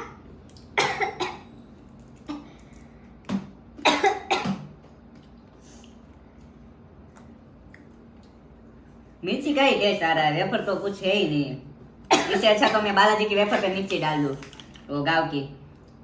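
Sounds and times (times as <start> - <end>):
person coughing harshly: 0.8 - 1.5, 3.8 - 4.7, 12.1 - 12.9.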